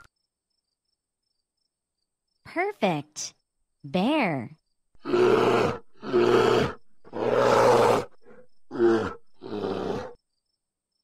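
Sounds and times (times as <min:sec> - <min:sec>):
bear roaring: 0:05.0 - 0:10.2.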